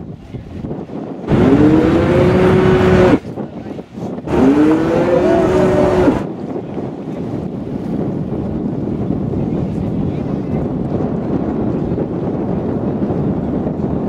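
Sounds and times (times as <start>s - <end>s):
wind buffeting microphone: 0.0s - 14.0s
cow moo horn: 4.3s - 6.2s.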